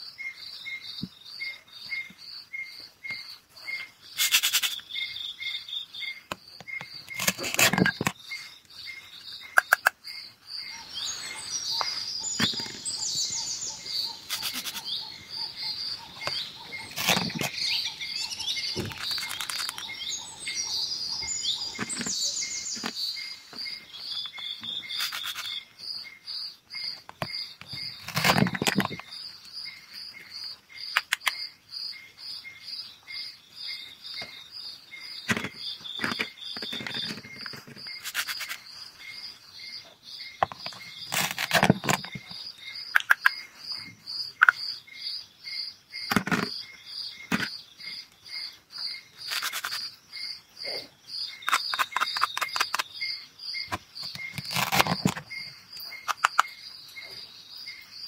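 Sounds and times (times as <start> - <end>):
birds chirping: 0.0 - 58.0
crickets chirping: 0.0 - 58.0
plastic toy pieces clattering: 18.8 - 19.8, 35.3 - 38.6, 49.3 - 49.8.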